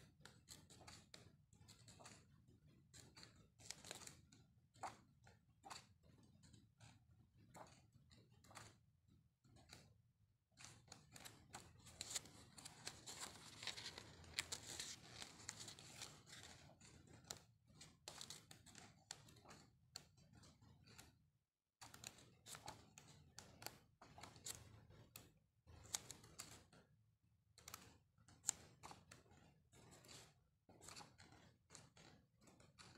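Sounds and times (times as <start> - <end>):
paper sheets clicking and tapping: 0.0 - 8.9, 10.6 - 21.1, 21.8 - 26.8, 27.6 - 32.9
paper pages turning: 3.1 - 4.2, 10.6 - 17.4, 18.0 - 18.8, 30.8 - 31.3.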